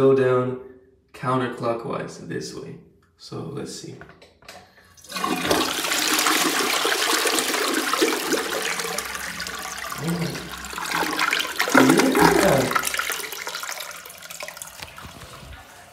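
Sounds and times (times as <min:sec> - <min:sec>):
toilet flushing: 0:04.7 - 0:15.9.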